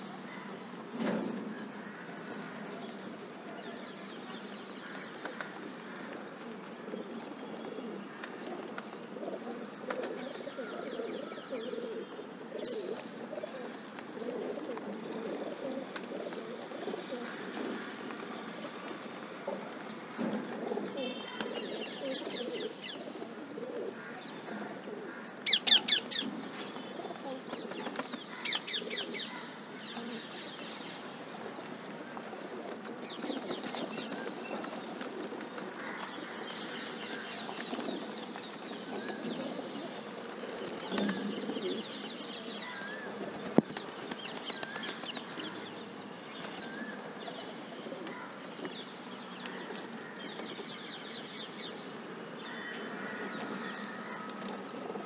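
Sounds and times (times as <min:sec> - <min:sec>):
pigeons cooing: 0:05.2 - 0:45.6.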